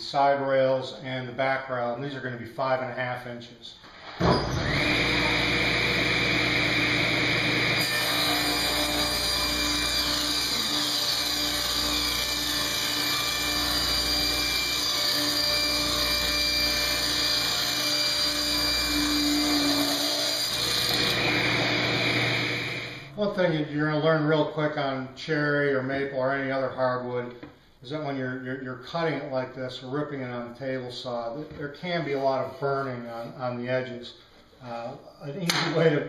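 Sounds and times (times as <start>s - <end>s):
table saw ripping a board: 4.0s - 23.1s.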